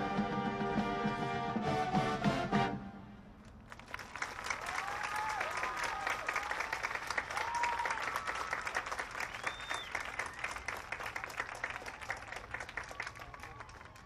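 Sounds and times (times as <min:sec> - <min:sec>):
crowd applauding: 0:03.7 - 0:14.0
whistles: 0:09.2 - 0:10.8.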